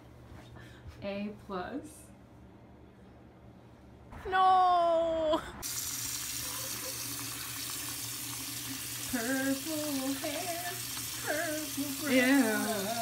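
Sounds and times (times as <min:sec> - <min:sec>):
person's wavering voice: 0:09.2 - 0:13.0.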